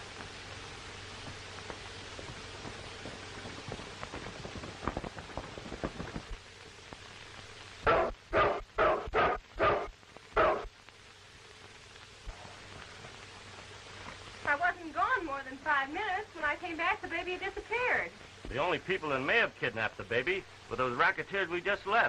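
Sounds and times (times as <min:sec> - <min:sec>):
film soundtrack hiss: 0:00.0 - 0:22.0
dog barking: 0:07.8 - 0:10.7.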